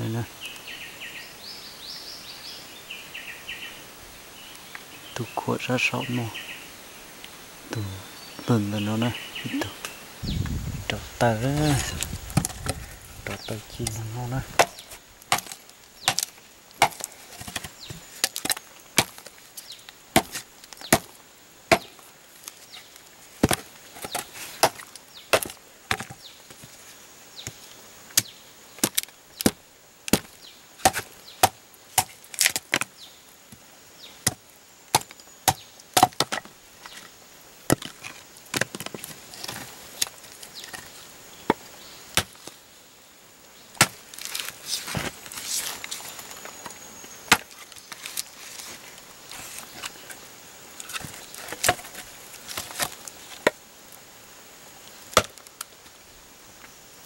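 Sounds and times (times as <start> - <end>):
rustling: 9.8 - 21.1, 21.7 - 27.7, 43.7 - 53.6
machete chopping wood: 14.5 - 19.3, 20.2 - 21.1, 21.7 - 22.0, 23.4 - 26.2, 28.2 - 32.9, 34.2 - 36.5, 41.5 - 42.5, 43.8 - 45.1, 47.3 - 47.6, 55.1 - 55.5.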